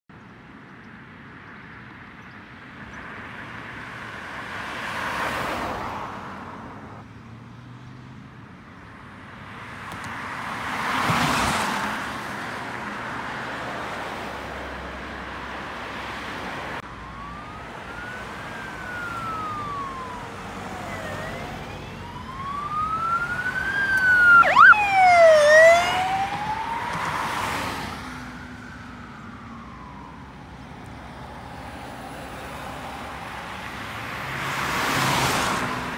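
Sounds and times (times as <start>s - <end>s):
cars passing: 0.2s - 35.9s
police siren yelp: 16.8s - 31.3s
police siren wailing: 16.8s - 33.5s.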